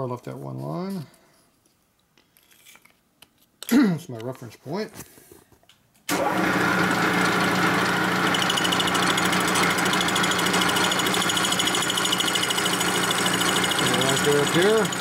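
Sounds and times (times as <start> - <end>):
milling machine running: 6.1 - 15.0.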